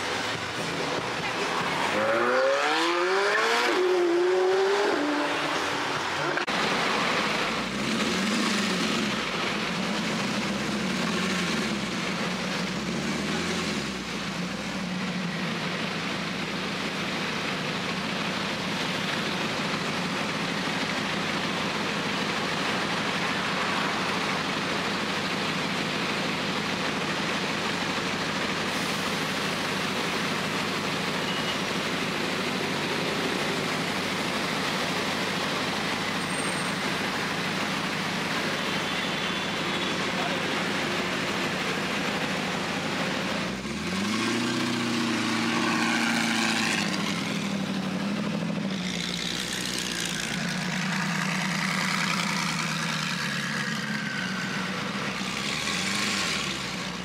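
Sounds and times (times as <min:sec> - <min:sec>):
engine note rising and falling: 0:00.0 - 0:14.3
car engines idling: 0:00.0 - 0:57.0
traffic noise: 0:00.0 - 0:57.0.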